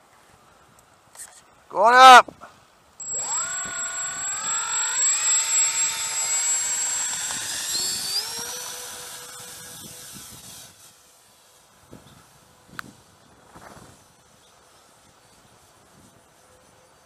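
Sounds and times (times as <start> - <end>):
model plane motors whining: 3.0 - 11.2.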